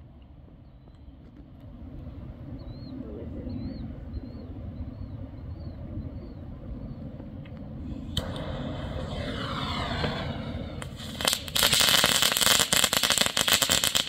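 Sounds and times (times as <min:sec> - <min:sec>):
firework fuse hissing: 0:07.8 - 0:14.0
firework crackling pops: 0:08.1 - 0:14.0.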